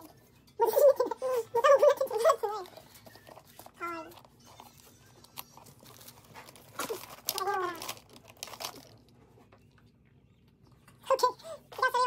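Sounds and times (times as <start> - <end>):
paper packaging rustling: 2.1 - 9.5.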